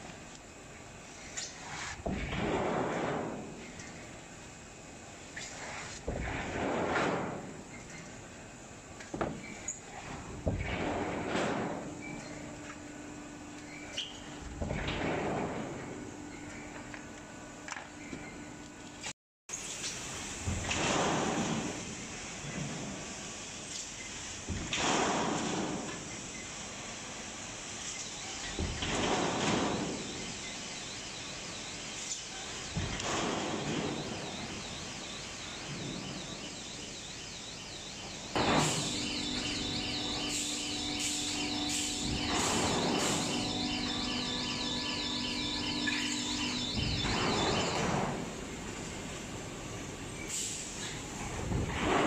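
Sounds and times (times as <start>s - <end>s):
factory machinery noise: 0.0s - 52.0s
steady hum: 19.7s - 51.9s.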